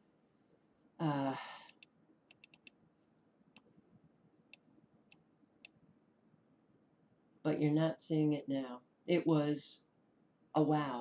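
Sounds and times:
person sighing: 0:01.0 - 0:01.7
computer mouse clicks: 0:01.7 - 0:03.7, 0:04.5 - 0:05.8.

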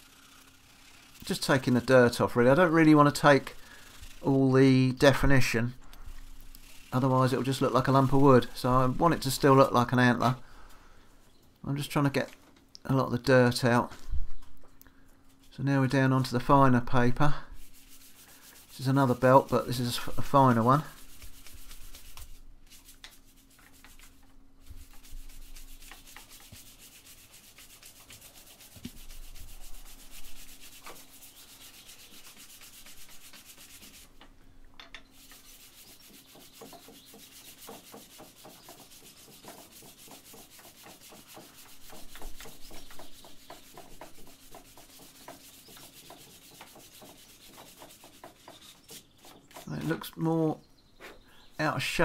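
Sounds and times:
sanding belt rubbing: 0:00.0 - 0:04.4, 0:06.6 - 0:09.7, 0:17.6 - 0:34.2, 0:35.1 - 0:50.1.

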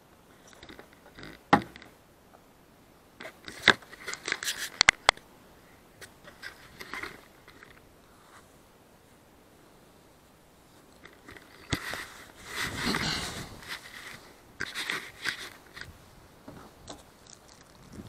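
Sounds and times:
camera handling rustling: 0:03.2 - 0:05.2, 0:06.0 - 0:07.8, 0:10.9 - 0:16.0.

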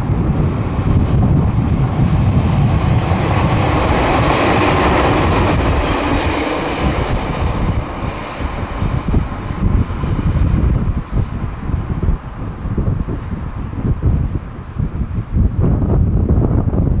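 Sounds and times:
train wheels on rails: 0:00.0 - 0:12.5
electric train passing: 0:00.0 - 0:15.0.

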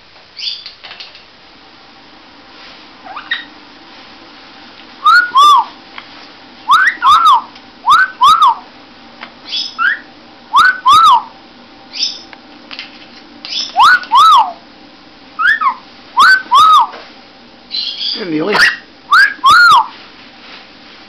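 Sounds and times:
parrot soft whistled calls: 0:03.1 - 0:03.5, 0:05.0 - 0:05.8, 0:06.7 - 0:08.6, 0:09.5 - 0:11.3, 0:13.5 - 0:14.6, 0:15.4 - 0:17.0, 0:17.7 - 0:20.0
parrot wolf whistle: 0:03.1 - 0:03.5, 0:05.0 - 0:05.8, 0:06.7 - 0:08.6, 0:09.5 - 0:11.3, 0:13.5 - 0:14.6, 0:15.4 - 0:17.0, 0:17.7 - 0:20.0.

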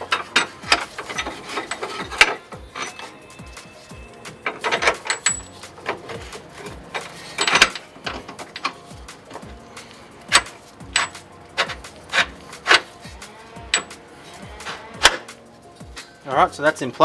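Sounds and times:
metal clinks and knocks: 0:00.0 - 0:09.6, 0:10.2 - 0:16.0
background music with steady beat: 0:00.0 - 0:17.0.

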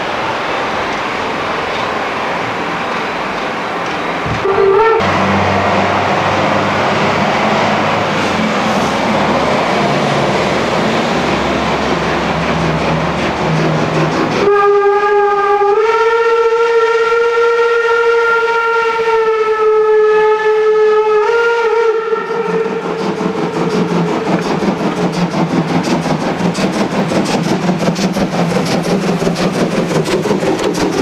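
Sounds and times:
steam locomotive exhaust beat: 0:00.0 - 0:31.0
steam locomotive whistle: 0:04.4 - 0:05.5, 0:14.4 - 0:23.6.

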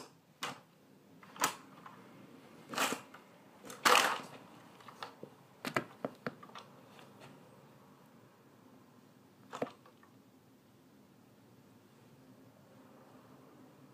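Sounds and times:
plastic toys clattering: 0:02.7 - 0:06.7.

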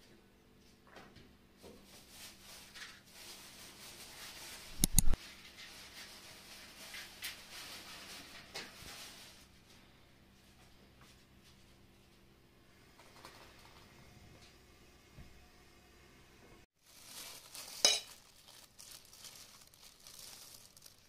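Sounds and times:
match striking on matchbox: 0:04.8 - 0:05.2
small click: 0:04.8 - 0:05.2.

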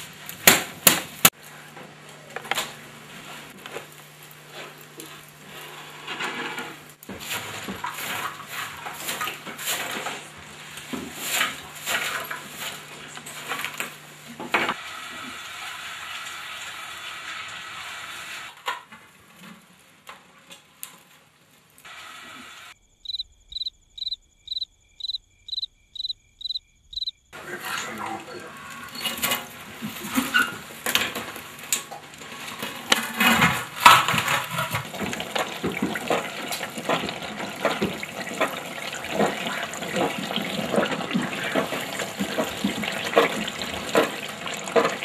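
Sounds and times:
wood fire crackling and popping: 0:00.0 - 0:01.5, 0:02.3 - 0:14.8, 0:18.6 - 0:21.9, 0:29.1 - 0:45.0
coals clattering: 0:02.1 - 0:14.7, 0:28.7 - 0:45.0
embers raked and scraped: 0:02.5 - 0:22.6, 0:27.4 - 0:45.0
cricket chirping: 0:22.8 - 0:27.4.

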